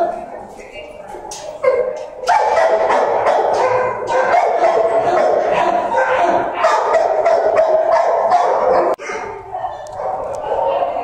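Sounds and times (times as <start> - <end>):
dogs barking and whining: 1.1 - 11.0.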